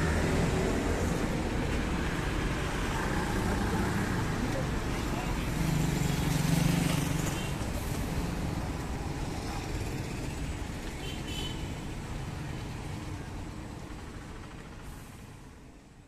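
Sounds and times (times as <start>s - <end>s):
passing vehicle engine: 0.0s - 10.8s
traffic hum: 0.0s - 16.0s.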